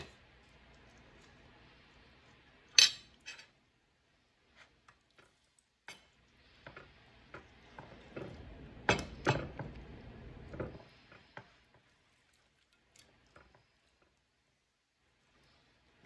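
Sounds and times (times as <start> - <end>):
clinks against plate: 2.8 - 3.5.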